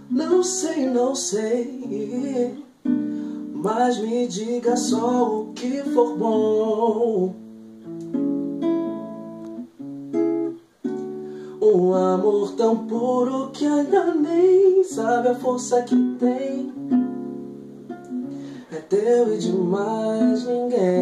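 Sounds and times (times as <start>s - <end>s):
man singing: 0.0s - 7.4s, 11.5s - 17.0s, 18.3s - 21.0s
acoustic guitar: 0.0s - 21.0s.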